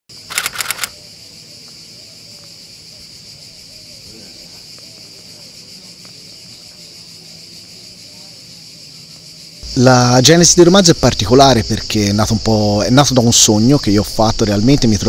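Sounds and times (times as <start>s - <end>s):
sharp rustling clicks: 0.1s - 1.0s
insects chirring: 0.1s - 15.0s.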